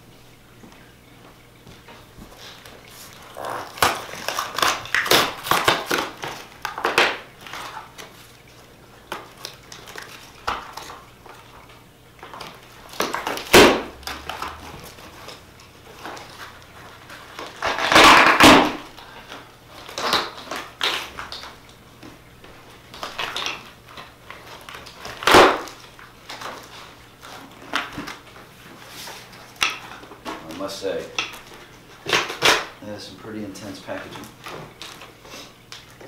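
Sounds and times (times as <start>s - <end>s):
cardboard rustling and scraping: 24.3s - 31.1s.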